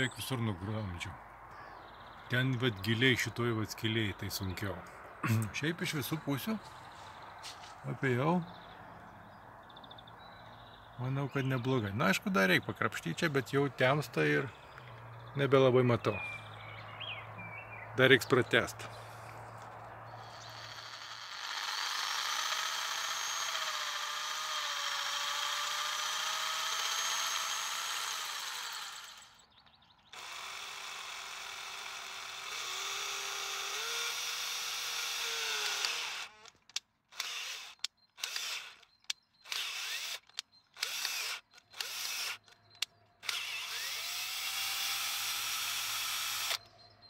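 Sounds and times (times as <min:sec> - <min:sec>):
cordless drill boring into metal: 0:20.3 - 0:29.4, 0:30.2 - 0:46.7.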